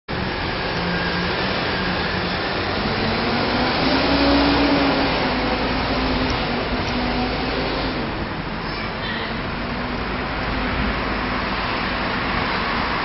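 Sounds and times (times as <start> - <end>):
helicopter turbine engines whooshing: 0.2 - 8.6.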